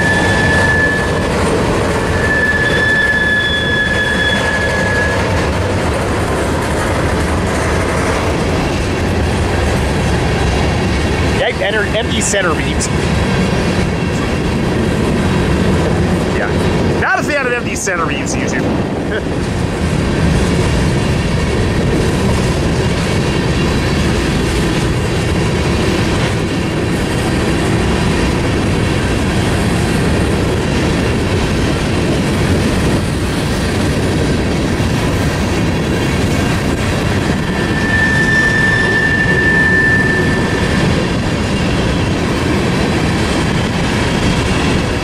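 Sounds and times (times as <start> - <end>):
high wheel squeal: 0.0 - 5.6, 37.2 - 42.2
train wheels rumbling on rail: 0.0 - 45.0.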